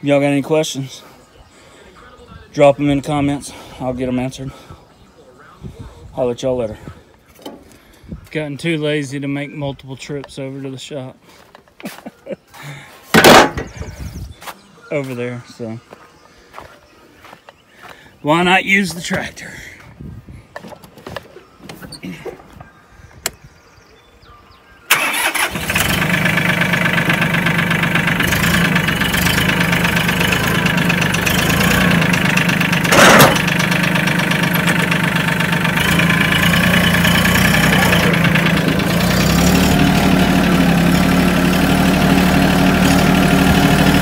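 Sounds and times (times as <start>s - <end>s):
tractor engine running: 13.1s - 14.0s, 24.9s - 44.0s.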